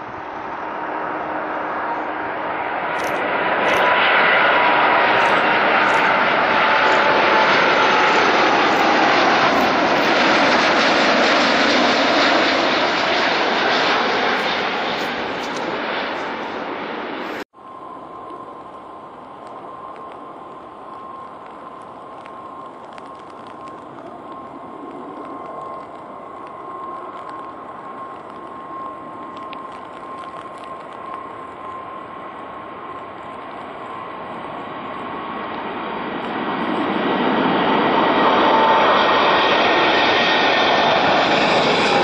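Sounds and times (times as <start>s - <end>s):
jet engines rumbling and whining: 0.0s - 42.0s.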